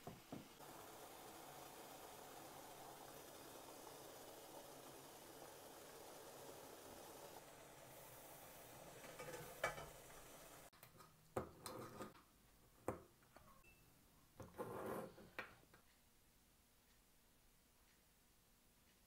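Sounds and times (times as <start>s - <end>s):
faint steady hiss: 0.0s - 19.0s
dishes clinking: 9.0s - 10.2s.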